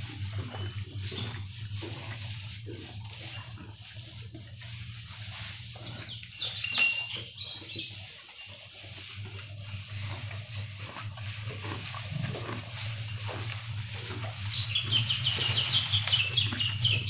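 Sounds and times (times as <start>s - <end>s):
steady low hum: 0.0s - 7.1s, 8.9s - 17.0s
cow crunching grass: 0.0s - 17.0s
bird chirping rapidly: 14.5s - 17.0s.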